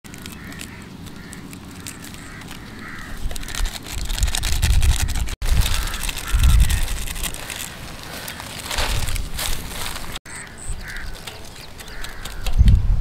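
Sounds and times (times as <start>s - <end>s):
birds calling: 0.0s - 12.8s
foil sachet crinkling: 0.1s - 10.2s.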